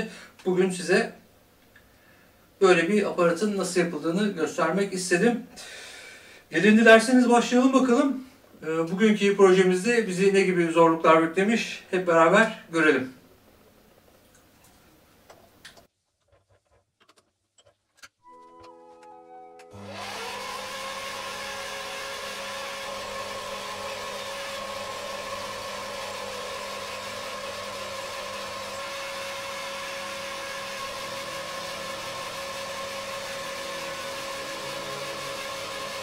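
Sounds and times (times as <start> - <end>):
lathe motor whine: 19.7 - 36.0.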